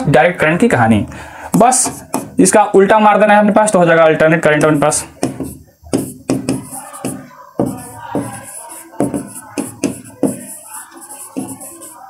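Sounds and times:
stylus tapping on board: 0:01.6 - 0:02.4, 0:04.6 - 0:10.6.

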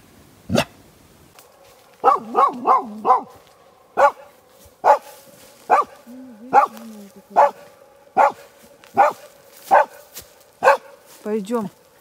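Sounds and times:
dog barking: 0:02.0 - 0:03.4, 0:04.0 - 0:11.1.

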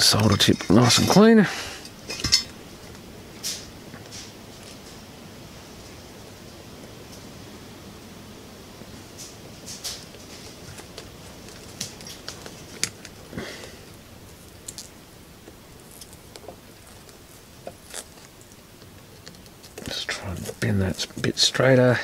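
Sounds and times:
faint steady hiss: 0:00.0 - 0:22.0.

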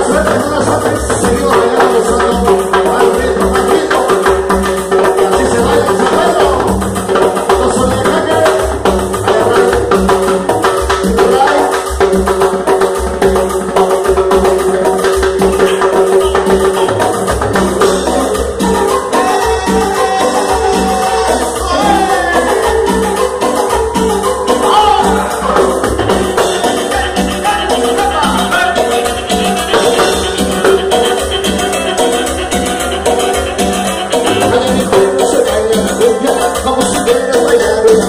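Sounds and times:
bongos and timbales: 0:00.0 - 0:38.0
latin dance band playing: 0:00.0 - 0:38.0
held keyboard tone: 0:15.6 - 0:35.2.

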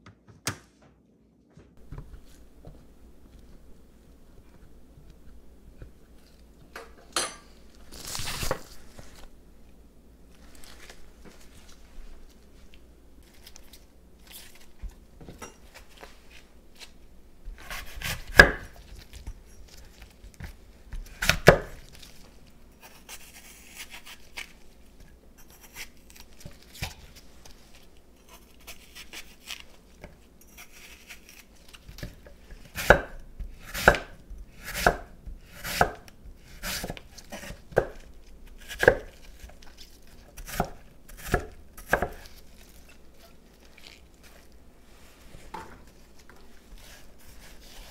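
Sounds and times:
knife chopping on cutting board: 0:17.5 - 0:18.8, 0:21.0 - 0:21.8, 0:32.0 - 0:38.0, 0:38.6 - 0:39.2, 0:40.4 - 0:42.3.

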